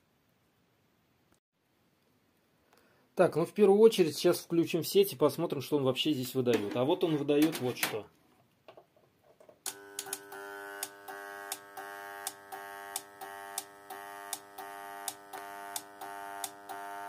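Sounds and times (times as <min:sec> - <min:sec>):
voltage stabilizer buzzing: 0:09.7 - 0:17.0.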